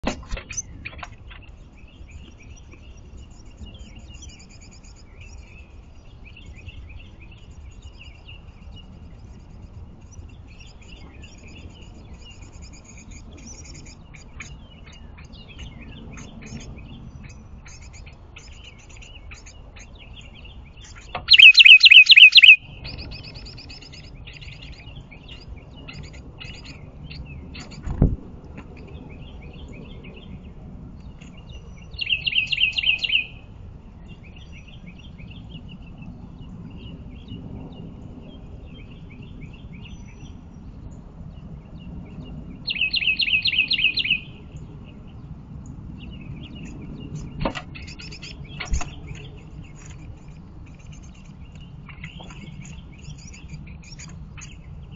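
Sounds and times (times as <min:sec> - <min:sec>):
faint fast high chirping: 0:20.9 - 0:24.8
wren calling rapid high notes: 0:21.2 - 0:24.0.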